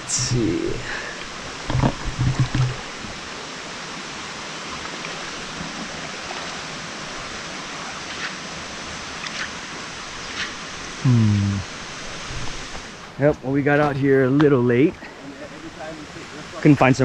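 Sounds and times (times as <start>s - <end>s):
stream water rushing: 0.0s - 17.0s
small water splashes: 4.5s - 10.8s.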